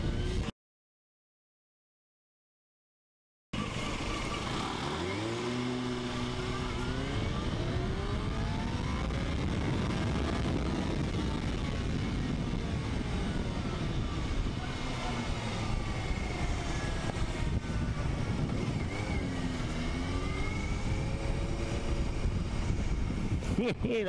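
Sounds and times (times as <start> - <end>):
motorcycle engine accelerating: 3.6 - 24.0
wind noise on microphone: 5.8 - 23.9.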